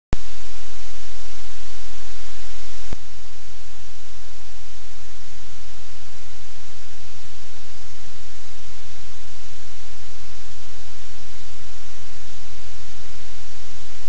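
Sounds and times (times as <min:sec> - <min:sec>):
low electrical hum: 0:00.2 - 0:14.0
static hiss: 0:00.2 - 0:14.0.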